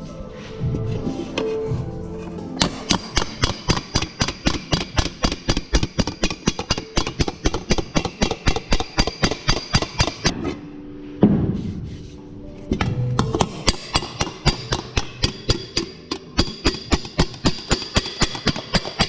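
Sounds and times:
hammer tapping sheet metal: 2.6s - 10.3s, 13.2s - 19.0s.

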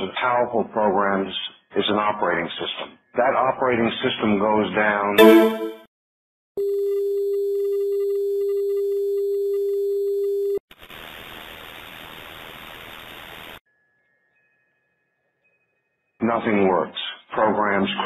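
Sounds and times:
television test tone: 5.2s - 5.8s
tv static hiss: 10.7s - 13.6s.

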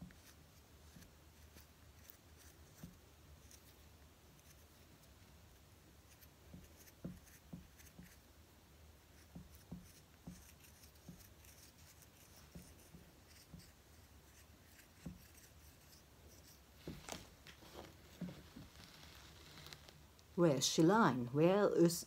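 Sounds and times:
tool scraping soft clay: 9.0s - 20.1s.

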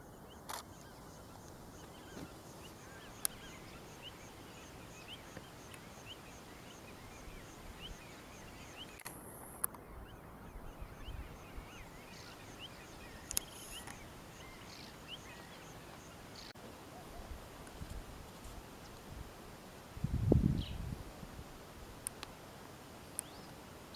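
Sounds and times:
bird chirps: 0.0s - 17.3s
sharp clicks: 8.9s - 9.8s, 13.2s - 14.0s.

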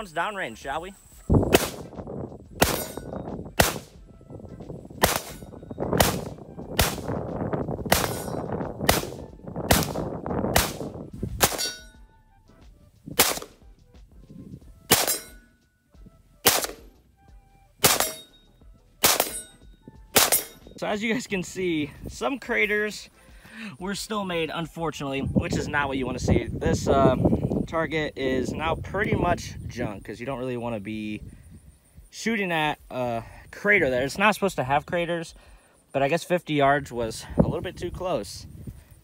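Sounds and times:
rifle shots with echo: 1.5s - 2.0s, 2.6s - 4.0s, 5.0s - 7.2s, 7.9s - 11.8s, 13.2s - 13.6s, 14.9s - 15.4s, 16.4s - 16.9s, 17.8s - 18.3s, 19.0s - 20.6s
steel target ringing: 2.6s - 3.8s, 7.9s - 9.2s, 11.4s - 12.0s, 14.9s - 15.6s, 17.8s - 20.8s.

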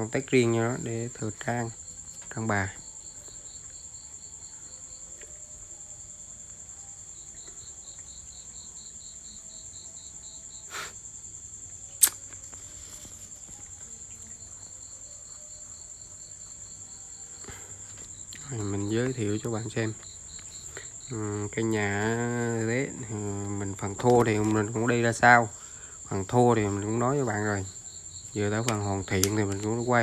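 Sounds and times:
insect trilling: 0.0s - 30.0s
sharp click: 12.0s - 12.4s.

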